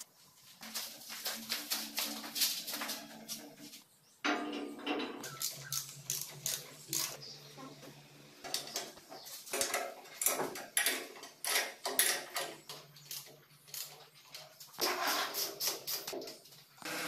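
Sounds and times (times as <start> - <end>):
wrench clicking on metal: 5.3 - 7.2.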